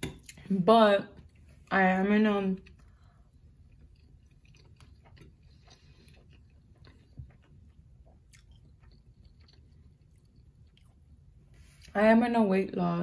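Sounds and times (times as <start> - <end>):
closed-mouth chewing: 2.6 - 11.9.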